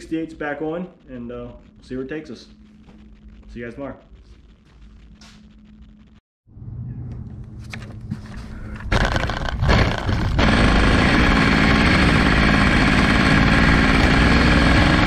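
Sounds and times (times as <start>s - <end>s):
two-stroke engine at high revs: 9.0s - 15.0s.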